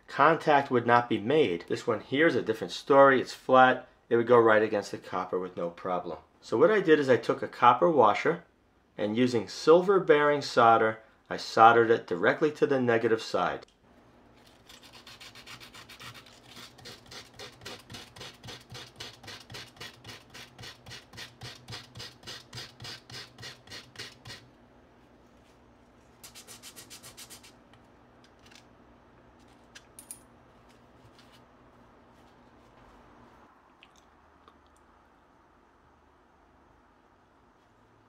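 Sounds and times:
sandpaper rubbing on metal: 14.7 - 24.5, 26.2 - 27.6.

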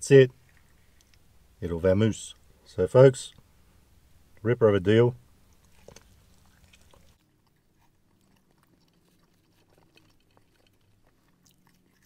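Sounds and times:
faint chewing mouth clicks: 0.4 - 1.3, 5.5 - 12.0.

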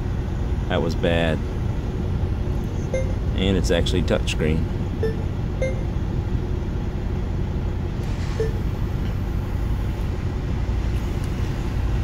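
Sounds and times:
van engine idling: 0.0 - 12.0
faint short beeps: 2.8 - 3.2, 5.0 - 6.0, 8.4 - 8.7.

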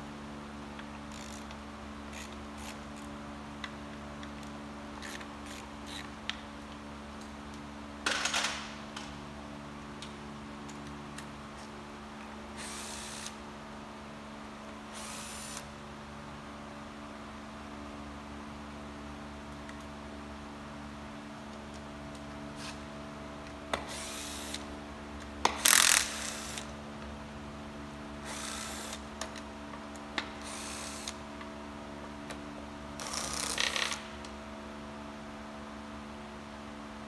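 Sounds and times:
ratchet bursts: 12.6 - 13.4, 14.9 - 15.7, 23.9 - 24.6, 25.5 - 26.7, 28.2 - 29.0, 30.4 - 31.2.

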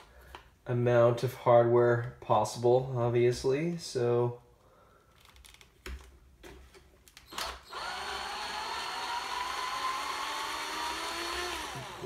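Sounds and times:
electric screwdriver motor whining: 7.3 - 12.0.

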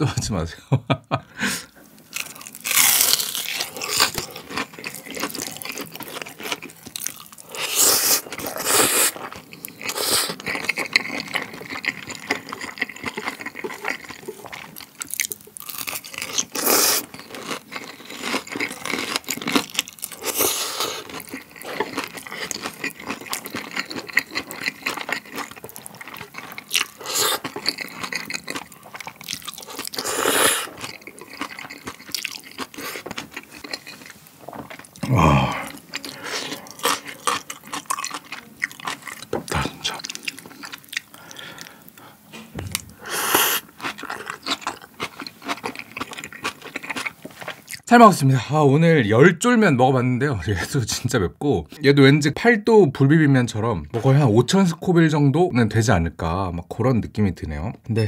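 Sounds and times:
wet chewing: 1.9 - 47.8
biting into crispy food: 2.1 - 41.8, 43.3 - 47.8
loud noodle slurps: 29.9 - 30.7, 43.0 - 43.7.

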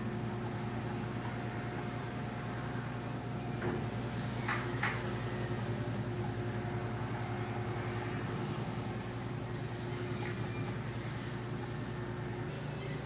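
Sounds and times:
low engine drone of boats: 0.0 - 13.0.

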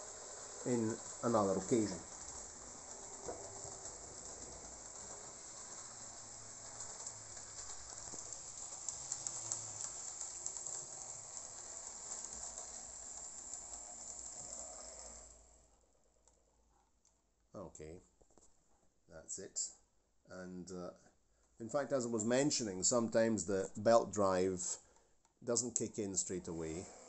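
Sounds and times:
model train rolling hiss: 0.0 - 15.6, 21.8 - 24.8, 25.6 - 27.0
wheels clicking on rails: 0.0 - 15.6, 25.8 - 27.0.

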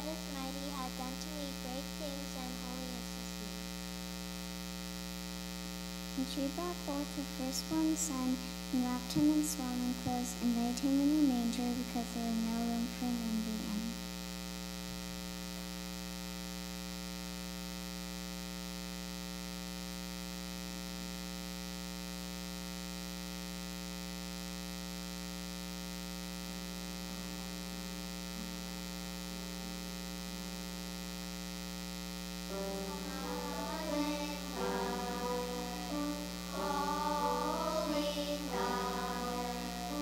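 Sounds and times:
electrical mains hum: 0.0 - 40.0
children singing: 32.7 - 40.0.

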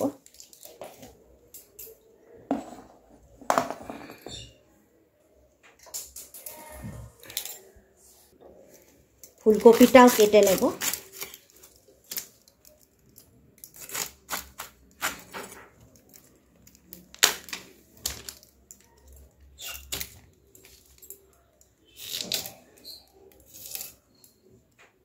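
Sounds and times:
knife cutting cauliflower: 13.7 - 15.3.

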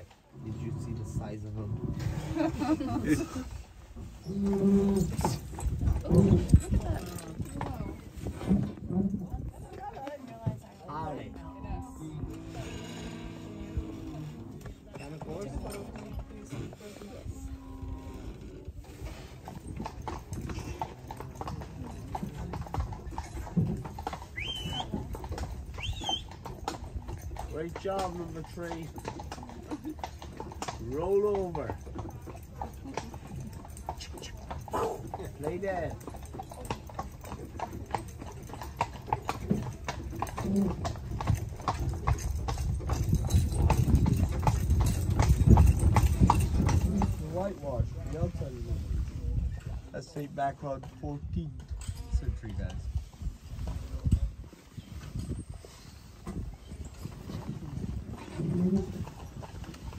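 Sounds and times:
horse hooves clip-clopping on road: 0.0 - 59.9
cart rattling: 18.7 - 48.4, 52.8 - 59.9.

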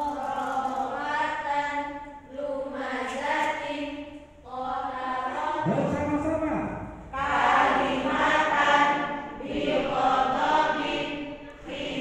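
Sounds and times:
group of voices chanting in unison: 7.0 - 12.0.

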